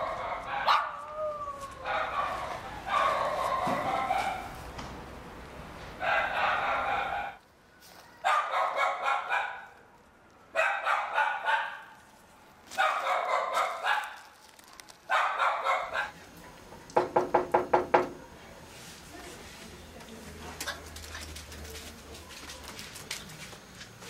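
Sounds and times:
dog barking: 0.0s - 1.0s, 1.8s - 4.5s, 6.0s - 7.4s, 8.2s - 9.8s, 10.5s - 11.9s, 12.8s - 14.3s, 15.1s - 16.2s.

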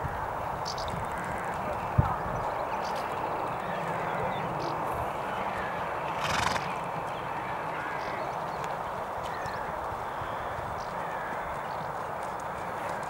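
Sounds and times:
horse snorting: 6.2s - 6.7s.

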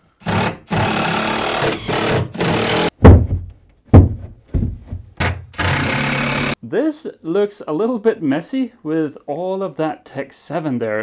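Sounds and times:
cordless drill driving screws: 0.2s - 2.9s, 5.6s - 6.6s
sharp knocks: 2.5s - 5.6s.

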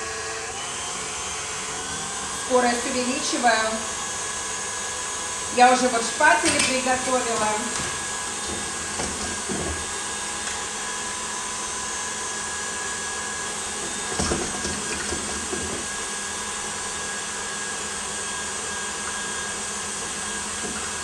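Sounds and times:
stand mixer whirring: 0.0s - 21.0s.

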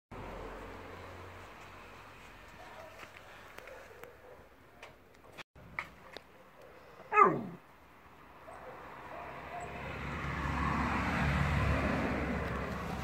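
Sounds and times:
dog yelping: 6.6s - 7.6s.

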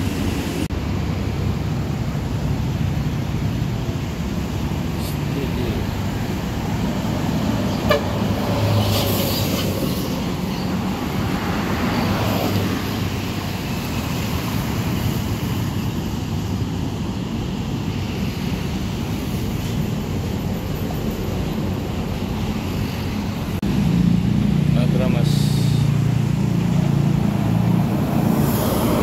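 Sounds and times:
traffic driving past: 0.0s - 29.0s
horn toot: 7.8s - 8.3s.

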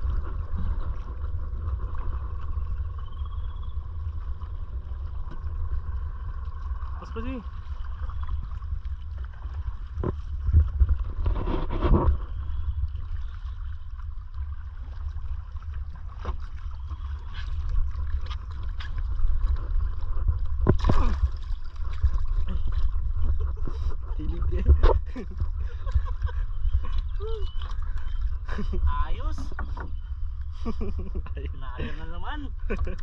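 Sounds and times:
water lapping against canoe: 0.0s - 33.0s
wind rumble on microphone: 0.0s - 33.0s
knocks and splashes: 6.8s - 12.3s, 14.7s - 30.0s.

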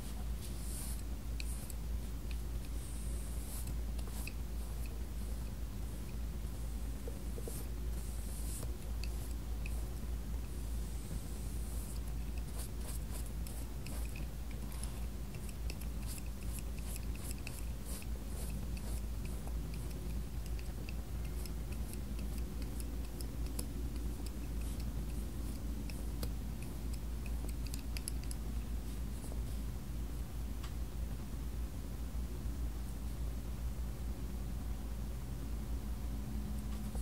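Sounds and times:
paintbrush scratching on paper: 0.0s - 9.9s, 10.5s - 26.2s
brush dabbing on palette: 0.0s - 29.6s
steady low hum: 0.0s - 37.0s.

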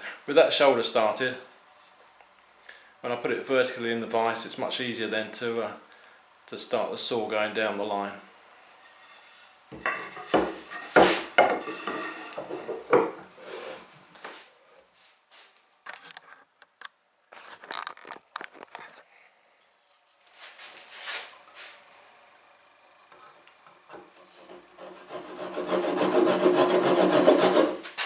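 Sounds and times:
wooden knocks and clatter: 9.7s - 13.2s.

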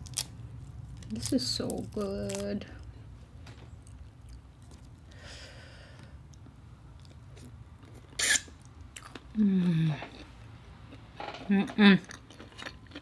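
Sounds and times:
biting and chewing: 10.0s - 13.0s.

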